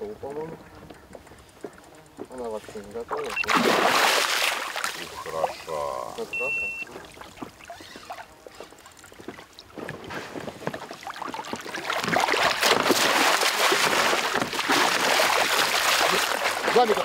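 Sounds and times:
fish thrashing and splashing: 0:03.1 - 0:06.0, 0:06.9 - 0:17.0.

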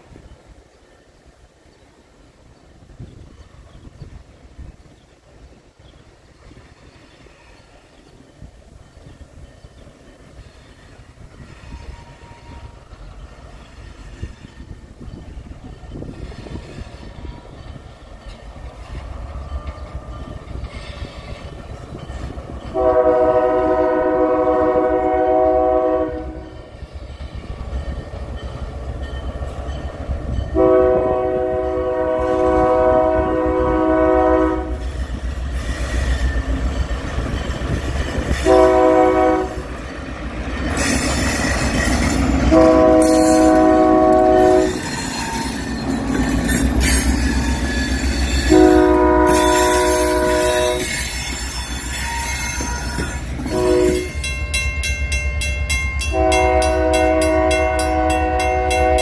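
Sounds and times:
train wheels on rails: 0:00.0 - 0:59.0
locomotive air horn blasts: 0:11.4 - 0:12.9, 0:22.7 - 0:26.6, 0:30.5 - 0:34.8, 0:38.4 - 0:39.7, 0:42.4 - 0:44.9, 0:46.8 - 0:51.1, 0:52.0 - 0:54.3, 0:56.1 - 0:59.0.

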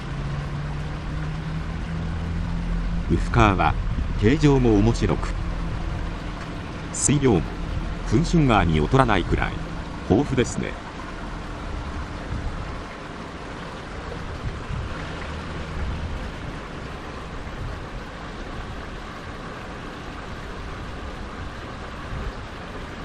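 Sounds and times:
low rumble: 0:00.0 - 0:12.9.

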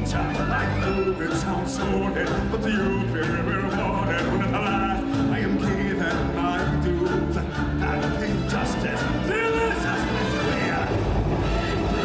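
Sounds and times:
person singing: 0:00.0 - 0:11.0
instrumental backing music: 0:00.0 - 0:12.0.

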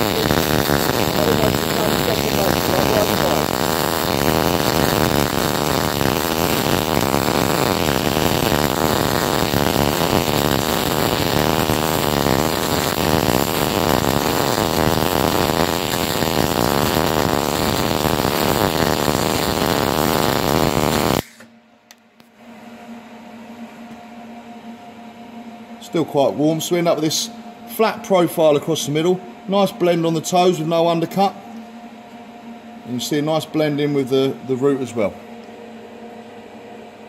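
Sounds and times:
welding arc crackling: 0:00.0 - 0:21.5.

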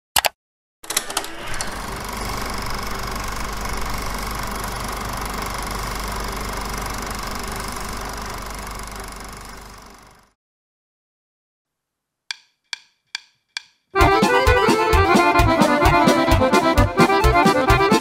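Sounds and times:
film projector clicks: 0:00.2 - 0:09.9
film projector whirring: 0:00.9 - 0:10.4.

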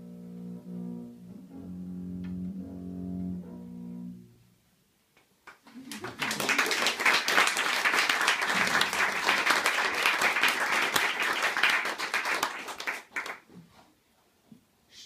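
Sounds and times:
audience applauding: 0:05.5 - 0:13.5.

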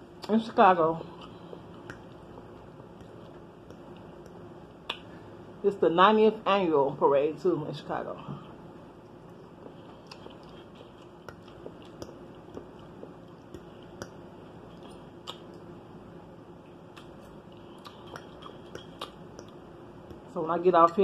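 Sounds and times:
person chewing food: 0:01.0 - 0:05.2, 0:09.0 - 0:15.7, 0:16.6 - 0:20.3
mouth clicks and smacks: 0:01.1 - 0:05.2, 0:09.2 - 0:15.6, 0:16.9 - 0:20.3.

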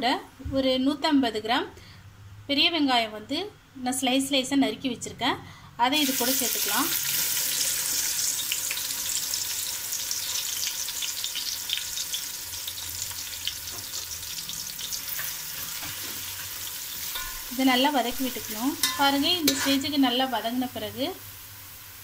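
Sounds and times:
onions sizzling in oil: 0:06.0 - 0:22.0
ladle stirring in pot: 0:14.7 - 0:19.9.

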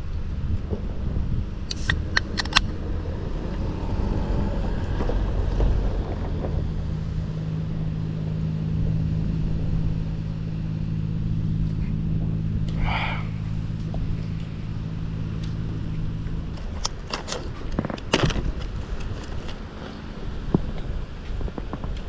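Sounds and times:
low mechanical hum: 0:00.0 - 0:22.0
sharp clicks: 0:01.6 - 0:02.8.

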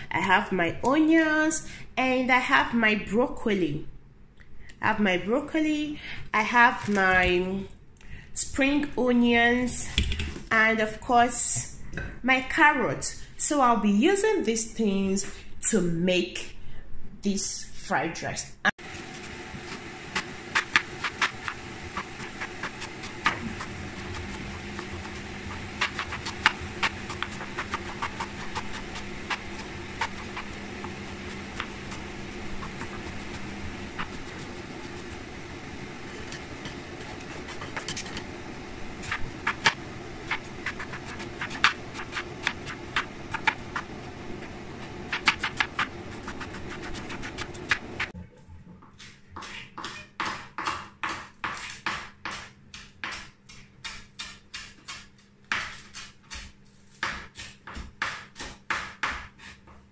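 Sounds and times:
mechanical hum: 0:06.2 - 0:50.2
knife chopping on cutting board: 0:20.2 - 0:32.0, 0:49.4 - 0:59.6.

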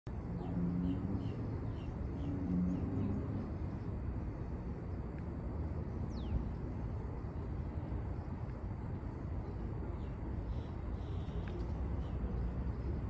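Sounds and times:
low rumble: 0:00.1 - 0:13.0
bird chirps: 0:06.0 - 0:06.5.

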